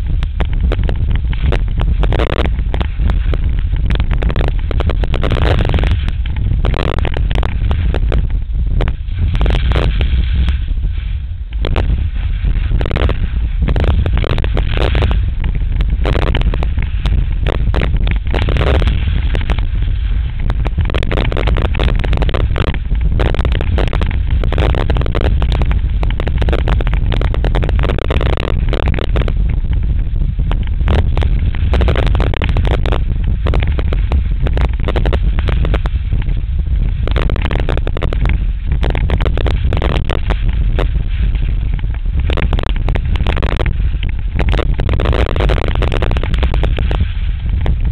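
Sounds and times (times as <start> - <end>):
wind buffeting microphone: 0.0 - 47.9
ski edges scraping snow: 1.3 - 8.3, 9.0 - 26.7.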